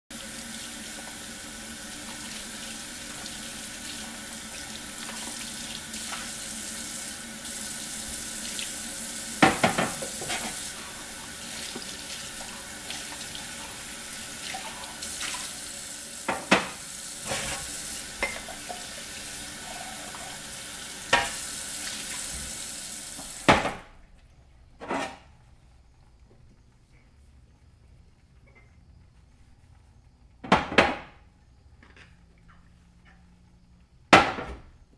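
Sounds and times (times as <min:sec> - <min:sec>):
water running from faucet: 0:00.1 - 0:23.6.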